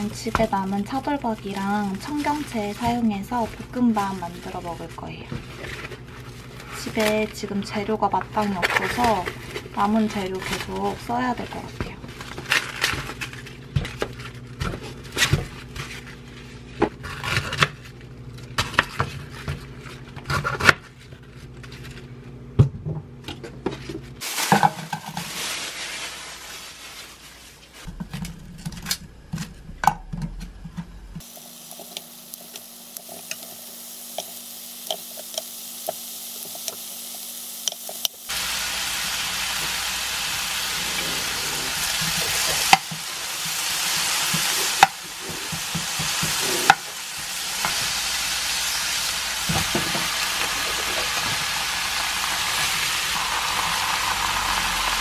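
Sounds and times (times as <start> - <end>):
plastic wrap being handled: 0.0 - 16.8, 24.1 - 28.5, 38.2 - 54.5
beef sizzling in a pan: 31.2 - 55.0.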